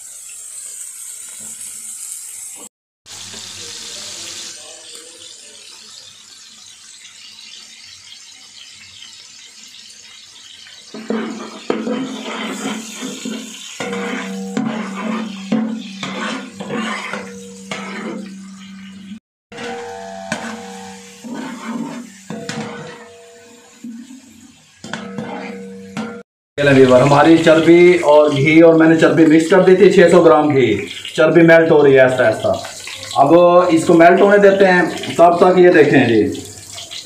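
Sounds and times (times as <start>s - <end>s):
fat sizzling in a pot: 0.0s - 37.0s
low hum: 13.8s - 23.6s.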